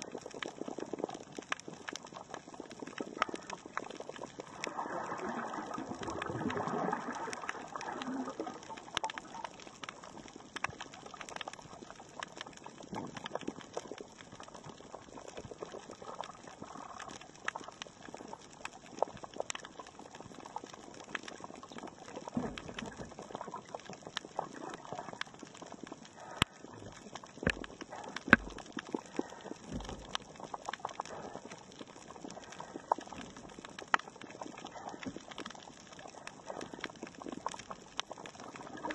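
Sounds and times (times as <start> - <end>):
sharp clicks and crackles: 0.0 - 38.9
swirl of water noise: 4.3 - 9.2.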